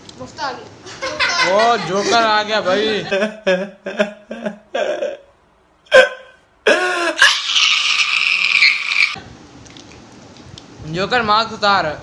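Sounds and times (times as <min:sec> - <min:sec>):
man crying out: 0:03.0 - 0:05.3, 0:05.9 - 0:09.0.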